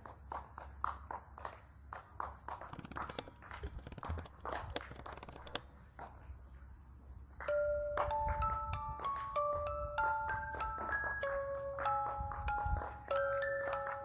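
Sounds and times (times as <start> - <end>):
chiming bell melody: 7.5 - 14.0.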